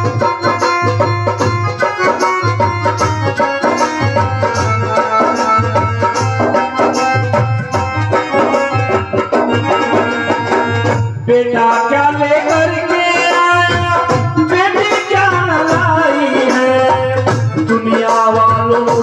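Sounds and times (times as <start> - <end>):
repeating bass beat: 0.0 - 11.1
electronic keyboard melody: 0.0 - 19.0
hand drum rhythm: 0.0 - 19.0.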